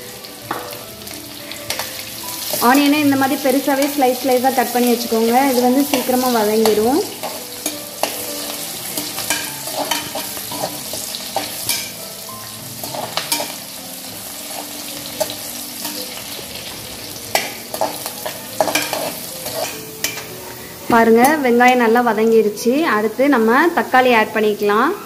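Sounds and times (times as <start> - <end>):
onions sizzling in hot oil: 0.0 - 25.0
metal spatula scraping pan: 1.6 - 13.7, 14.4 - 20.4.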